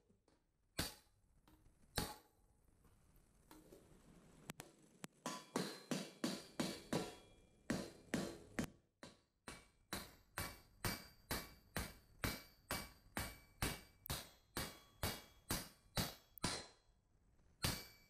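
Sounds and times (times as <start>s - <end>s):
hammer striking steel on anvil: 0.8s - 1.1s, 2.0s - 2.3s, 5.2s - 16.9s, 17.6s - 18.0s.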